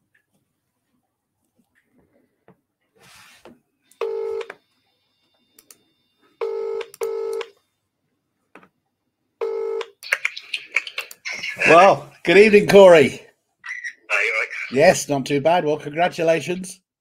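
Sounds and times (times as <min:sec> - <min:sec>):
telephone ringing tone: 0:04.0 - 0:04.6, 0:06.4 - 0:07.6, 0:09.4 - 0:10.0.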